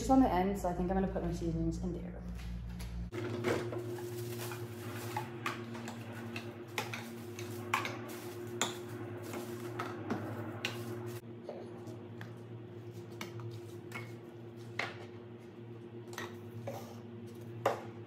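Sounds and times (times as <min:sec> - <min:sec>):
steady low hum: 0:00.0 - 0:18.0.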